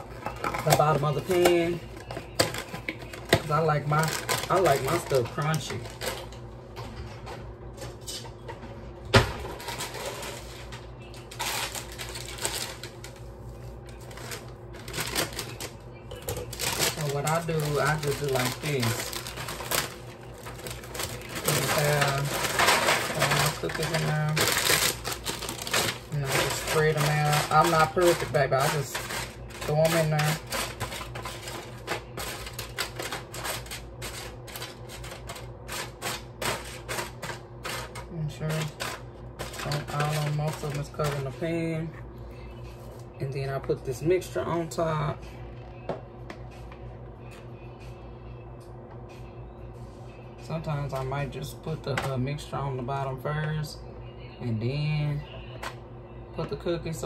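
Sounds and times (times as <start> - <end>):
packaging crinkling: 0.0 - 6.4, 9.4 - 41.4
steady low hum: 0.0 - 57.0
cookies clicking in foil pan: 14.1 - 41.4.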